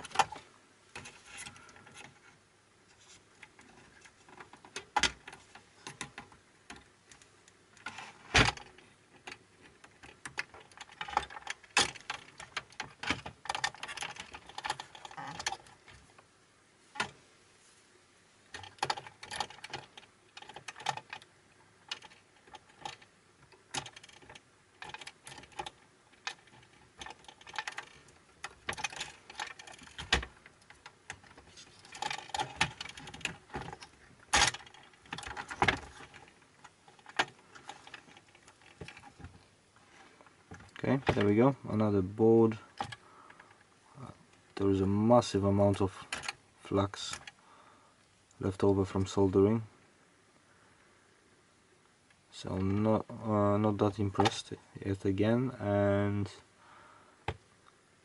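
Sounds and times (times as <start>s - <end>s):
plastic parts clicking and rattling: 0.0s - 16.3s, 16.9s - 17.2s, 18.5s - 47.4s, 53.7s - 54.6s.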